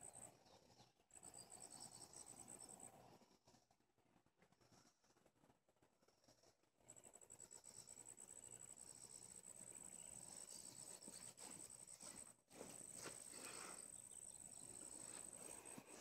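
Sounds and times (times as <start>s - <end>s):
soft rustling: 10.4s - 16.0s.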